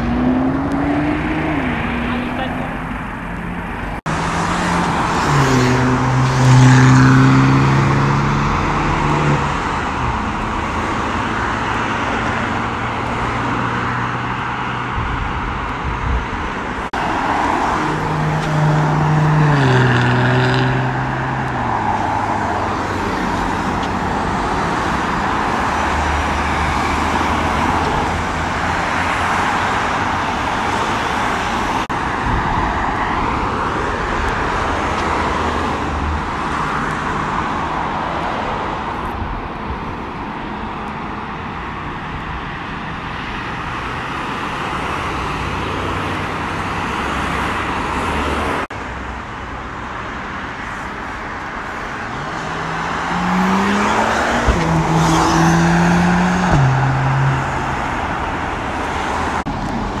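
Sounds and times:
cars accelerating past: 0:00.0 - 0:16.1, 0:16.9 - 0:38.6, 0:52.0 - 1:00.0.

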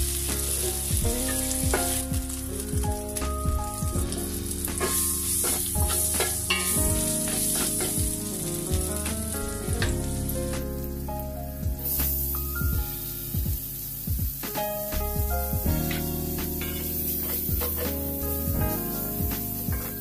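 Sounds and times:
butter sizzling in a pan: 0:00.0 - 0:20.0
soft background music: 0:00.0 - 0:20.0
wooden spatula scraping a pan: 0:04.2 - 0:08.3, 0:15.8 - 0:20.0.

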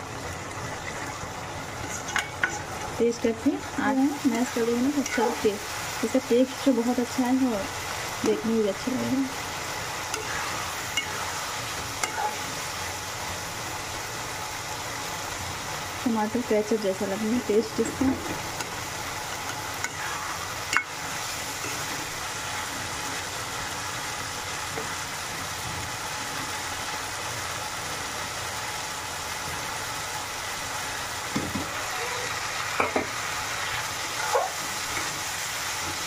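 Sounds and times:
vegetables sizzling in a pan: 0:00.0 - 0:36.0
metal spatula stirring pan: 0:04.2 - 0:05.6, 0:10.0 - 0:12.7, 0:17.6 - 0:22.1.

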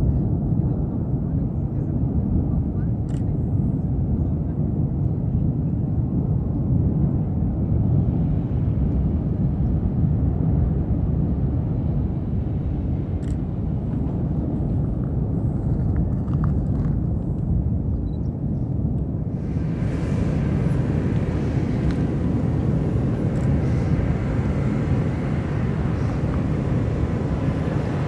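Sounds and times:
volcano erupting with deep roar: 0:19.2 - 0:28.0.

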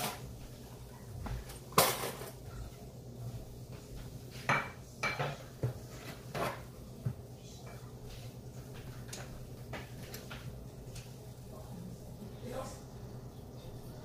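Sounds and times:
pots and dishes clattering: 0:00.0 - 0:00.3, 0:01.3 - 0:02.8, 0:04.3 - 0:10.6
low steady hum: 0:00.0 - 0:14.0.

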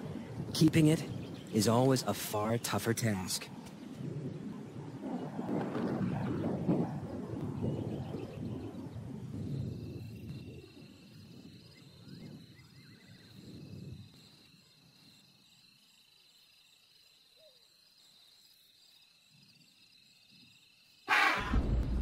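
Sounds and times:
insects trilling: 0:00.0 - 0:21.7
faint chirps: 0:09.5 - 0:21.6
loud animal cry: 0:21.1 - 0:21.6.

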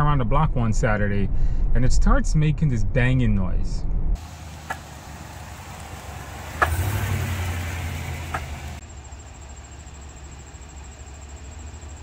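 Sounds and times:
low vehicle hum: 0:03.7 - 0:12.0
sharp vehicle bangs: 0:04.2 - 0:08.8.

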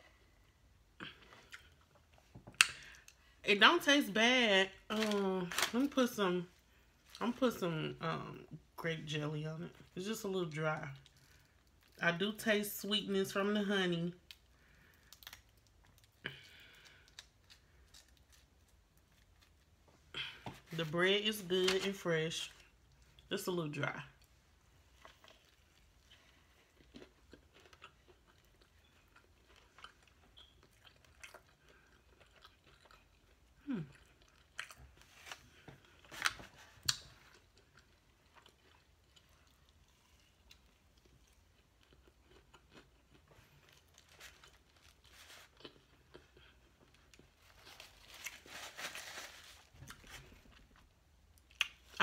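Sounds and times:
chewing and biting food: 0:24.9 - 0:47.6.

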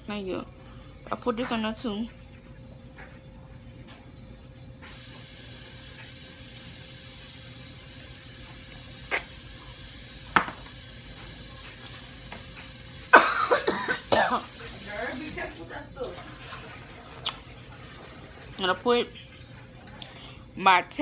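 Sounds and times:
tap water running: 0:04.8 - 0:20.4.

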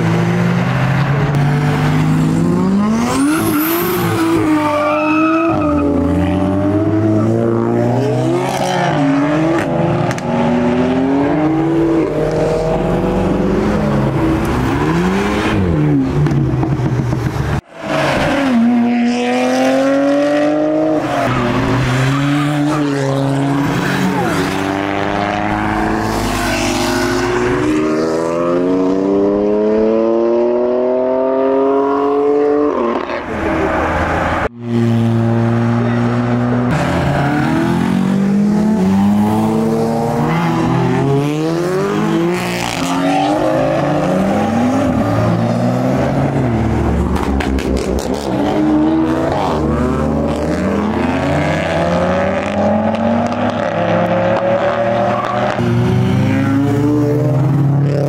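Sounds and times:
car engines revving and accelerating: 0:00.0 - 0:58.0.

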